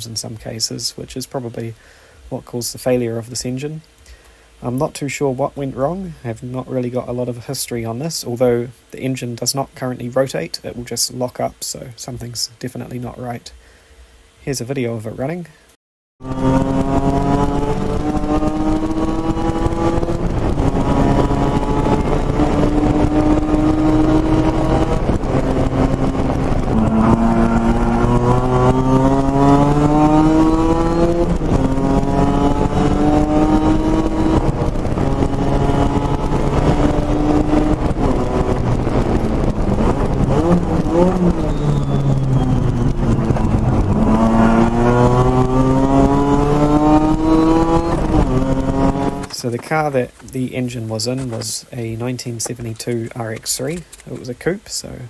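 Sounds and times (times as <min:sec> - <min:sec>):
rotary engine revving hard: 0:16.2 - 0:49.3.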